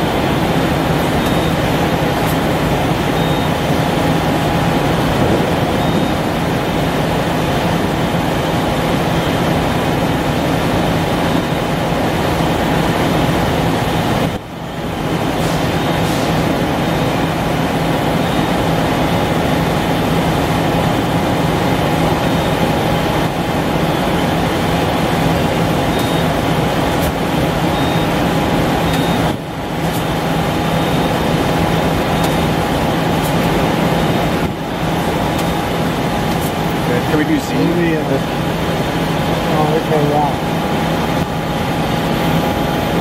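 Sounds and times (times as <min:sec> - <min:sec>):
thin machine whine: 0:00.0 - 0:11.7, 0:14.9 - 0:43.0
machine mechanical hum: 0:00.0 - 0:43.0.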